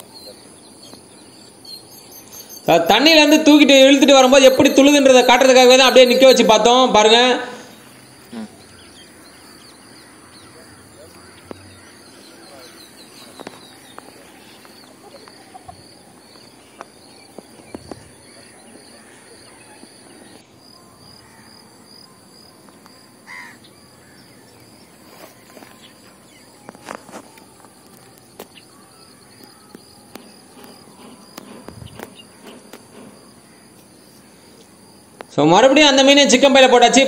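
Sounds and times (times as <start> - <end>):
bird call: 0.0 - 22.3
insect drone: 0.0 - 36.2.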